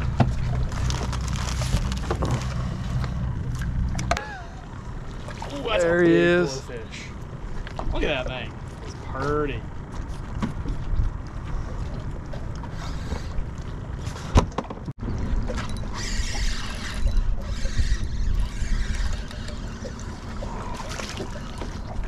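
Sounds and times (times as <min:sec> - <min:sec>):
water lapping against boat hull: 0:00.0 - 0:22.0
wind rumble on microphone: 0:10.2 - 0:20.9.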